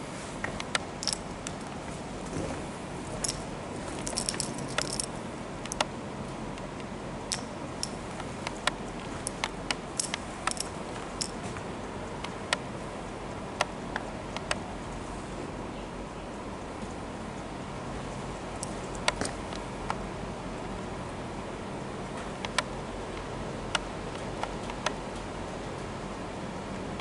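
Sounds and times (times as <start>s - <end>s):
metallic jingles: 3.2s - 5.1s.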